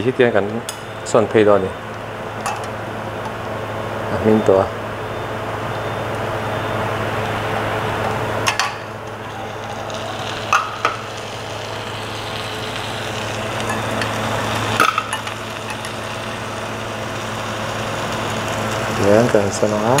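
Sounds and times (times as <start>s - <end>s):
low hum: 0.0s - 19.1s
steady hiss: 9.1s - 20.0s.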